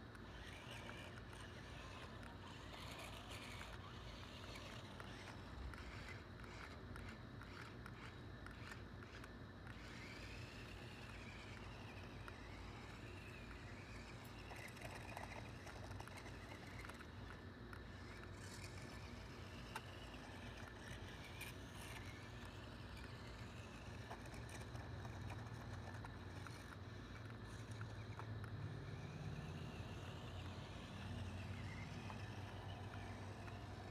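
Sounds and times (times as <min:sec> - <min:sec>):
toy car motor whine: 0:00.0 - 0:33.9.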